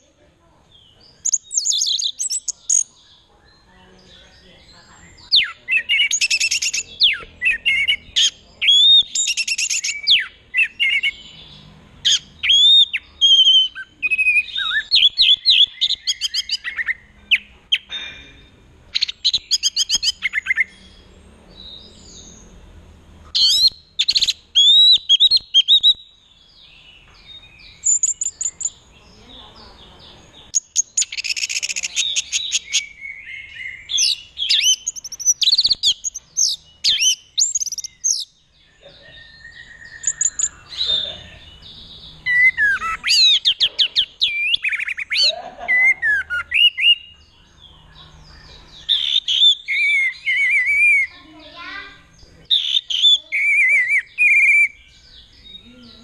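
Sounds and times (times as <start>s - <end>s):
bird whistling and trilling: 1.3s - 2.9s, 5.3s - 11.4s, 12.1s - 17.5s, 18.9s - 20.8s, 23.4s - 26.1s, 27.7s - 28.8s, 30.5s - 38.3s, 39.1s - 41.6s, 42.2s - 47.2s, 48.0s - 51.2s, 52.5s - 55.0s.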